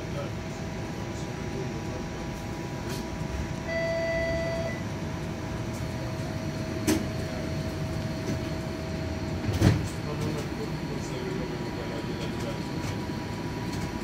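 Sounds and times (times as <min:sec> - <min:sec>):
electrical hum: 0:00.0 - 0:14.0
streetcar low rumble: 0:00.0 - 0:14.0
single beep: 0:03.7 - 0:04.8.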